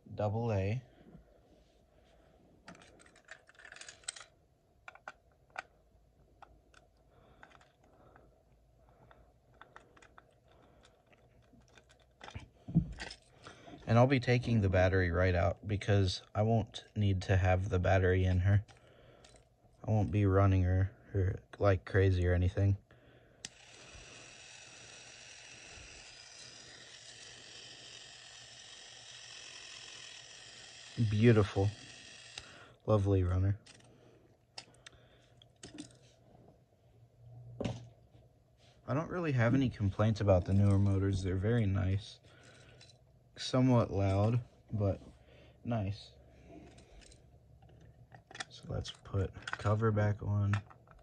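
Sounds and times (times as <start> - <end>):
toy train motor whirring: 23.4 - 32.8, 33.6 - 33.9.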